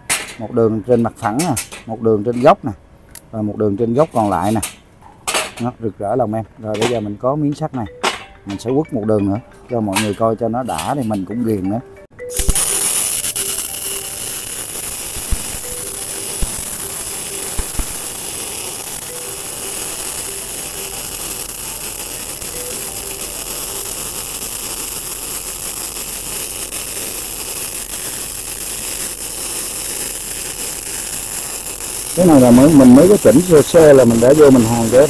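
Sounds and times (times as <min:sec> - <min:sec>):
sharp welding pops: 0:00.0 - 0:02.5, 0:12.3 - 0:35.0
welding arc hissing: 0:12.3 - 0:35.0.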